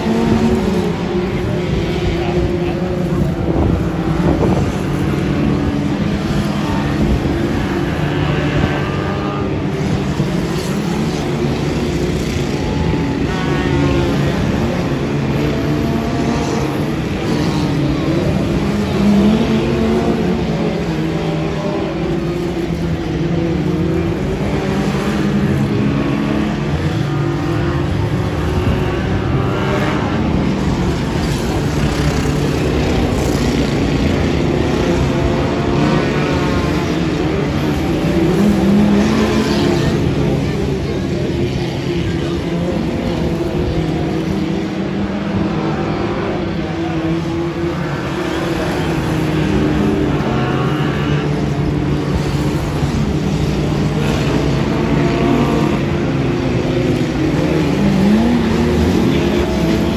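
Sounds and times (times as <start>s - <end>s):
racing car engines revving: 0.0s - 59.9s.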